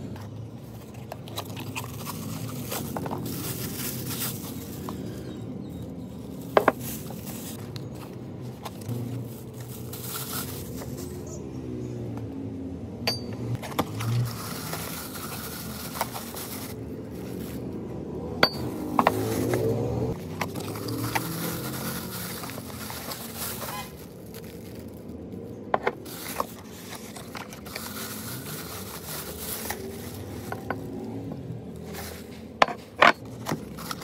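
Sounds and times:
cardboard rustling and scraping: 0.0 - 5.2, 6.1 - 11.2, 13.6 - 17.9, 18.8 - 25.0, 25.7 - 34.0
plastic wrapping crinkling: 0.3 - 11.2, 13.6 - 17.9, 18.9 - 34.0
ceramic mugs clinking: 18.4 - 19.1.

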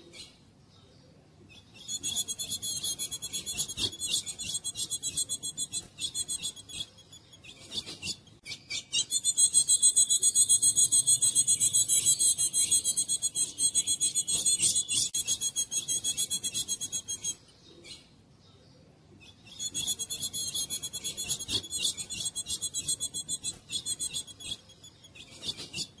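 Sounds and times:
bird rasping chatter: 1.8 - 17.4, 19.5 - 26.0.

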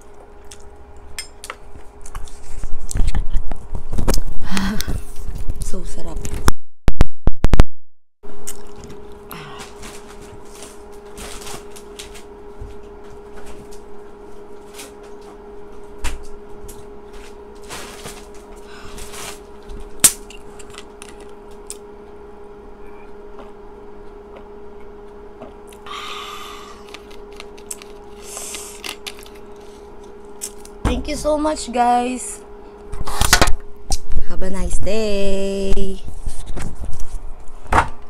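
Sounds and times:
low hum: 8.3 - 38.0.

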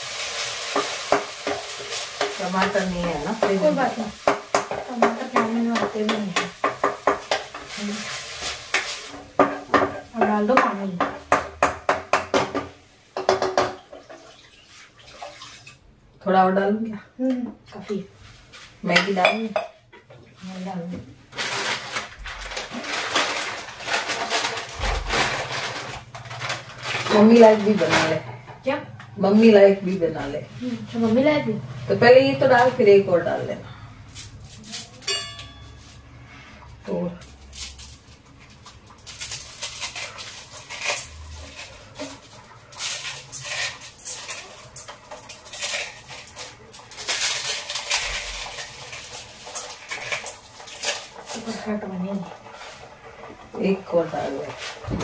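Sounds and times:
plastic wrapper crinkling: 7.4 - 9.2, 21.3 - 28.2, 37.2 - 51.7
dry noodles crunching and crackling: 21.3 - 28.0, 37.2 - 51.8.

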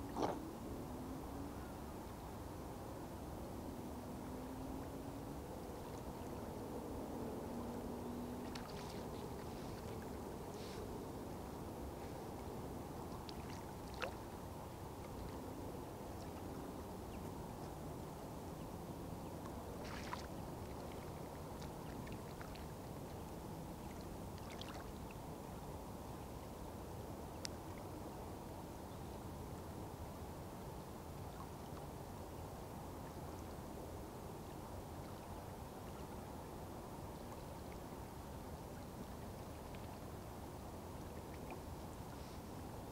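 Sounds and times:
distant road traffic hum: 0.0 - 24.8.

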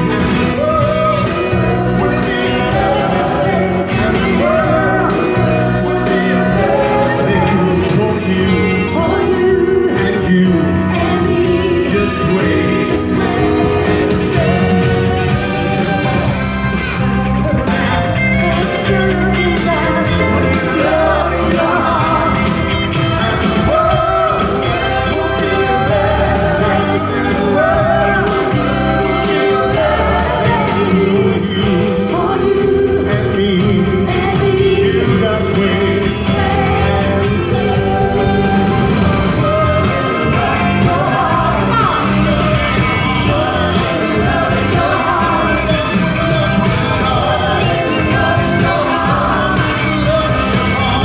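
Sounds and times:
bass line: 0.0 - 51.0
electric guitar: 0.0 - 51.0
man singing: 0.0 - 51.0.

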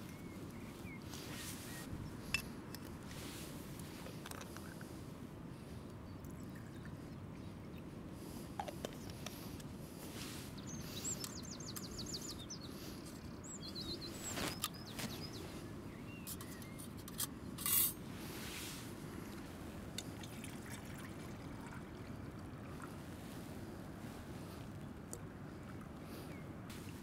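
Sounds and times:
small bird chirping: 10.3 - 17.0
metal stove parts clinking: 17.0 - 18.0.

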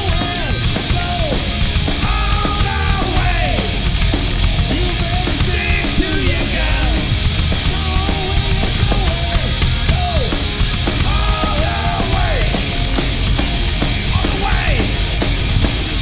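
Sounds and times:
man singing: 0.0 - 3.8, 4.7 - 12.7, 14.1 - 15.0
distorted electric guitar: 0.0 - 16.0
drum kit: 0.0 - 16.0.

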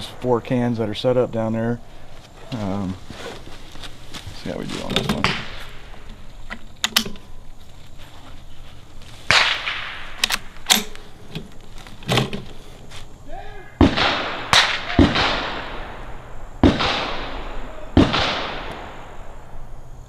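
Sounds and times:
gunshots with echo: 13.8 - 19.2.

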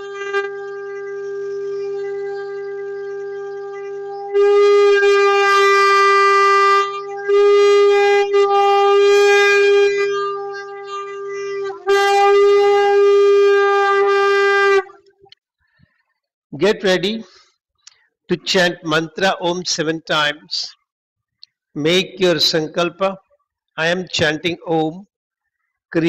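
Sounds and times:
conch shell blown: 0.0 - 15.0.

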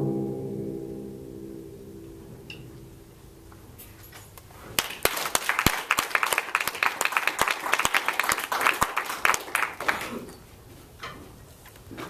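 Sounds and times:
timpani ringing: 0.0 - 3.5
people clapping: 4.8 - 10.3.

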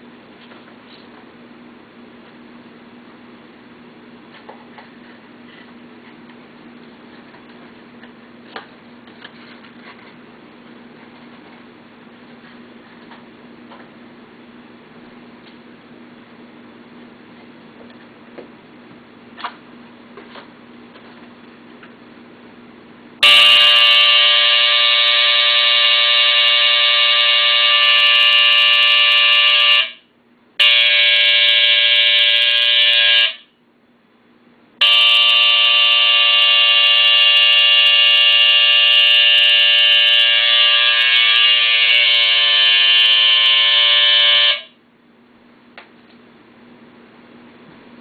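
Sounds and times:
smoke alarm buzzing: 23.2 - 33.6, 34.8 - 44.8.

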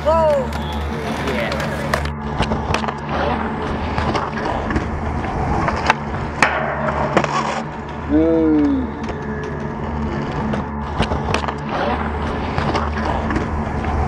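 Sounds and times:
skateboard clacks: 0.0 - 3.3
skateboard wheels rolling on concrete: 0.0 - 14.0.

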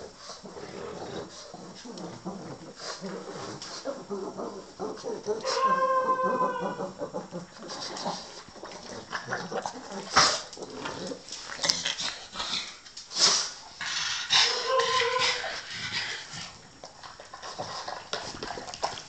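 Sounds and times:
dog sniffing and snuffling: 0.0 - 5.7
dog whining: 3.9 - 7.0, 14.4 - 15.7.

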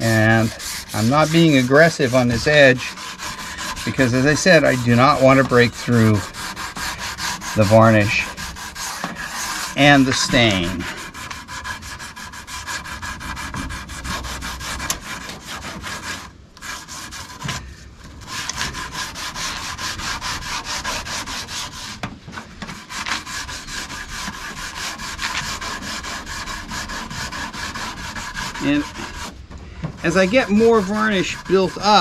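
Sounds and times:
sandpaper rubbing wood: 0.0 - 17.6, 18.2 - 29.4, 30.0 - 32.0.

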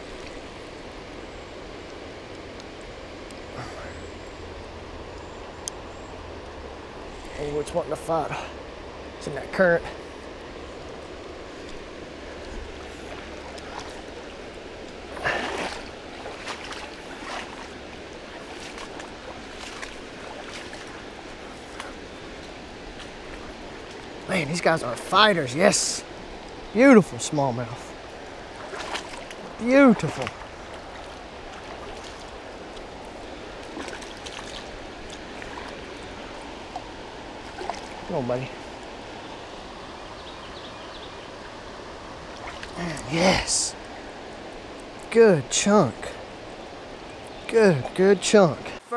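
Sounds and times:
small water splashes: 0.0 - 3.8, 8.1 - 48.8
river rushing over rocks: 7.9 - 40.0, 41.2 - 44.8.

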